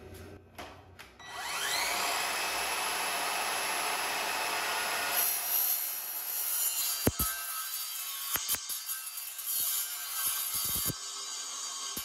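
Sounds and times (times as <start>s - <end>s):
mitre saw motor whine: 1.2s - 5.2s
saw blade cutting steel: 1.3s - 12.0s.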